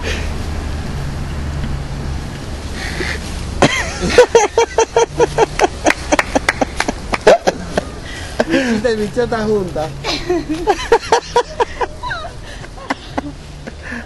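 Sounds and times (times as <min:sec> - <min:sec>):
low outdoor rumble: 0:00.0 - 0:14.0
woman laughing hard: 0:02.8 - 0:08.8, 0:10.0 - 0:14.0.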